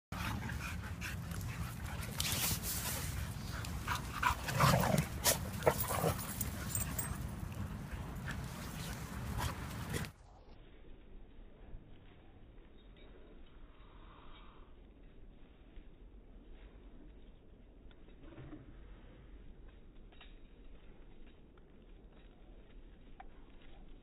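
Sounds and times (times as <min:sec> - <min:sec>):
scuffling and clicking: 0:00.2 - 0:10.2.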